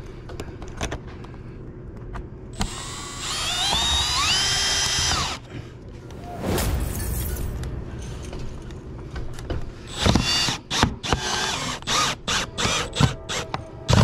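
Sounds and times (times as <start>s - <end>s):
cordless drill driving a screw: 2.6s - 5.4s, 9.9s - 14.0s.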